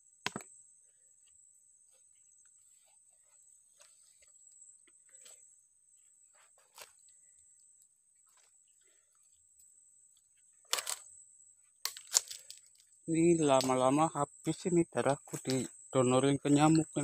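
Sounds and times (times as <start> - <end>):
high insect drone: 0.0 - 17.0
twigs and leaves crackling: 10.6 - 11.1, 11.8 - 12.9, 13.5 - 13.9, 15.1 - 15.7.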